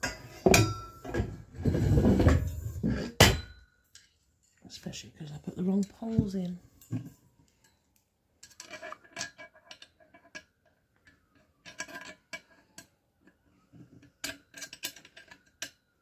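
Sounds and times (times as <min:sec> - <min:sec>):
metal tubes clicking and clinking: 0:07.5 - 0:13.4, 0:14.0 - 0:16.0.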